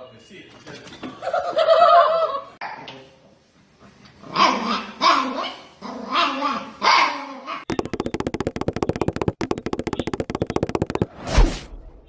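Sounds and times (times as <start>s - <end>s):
dog barking: 4.4s - 7.3s.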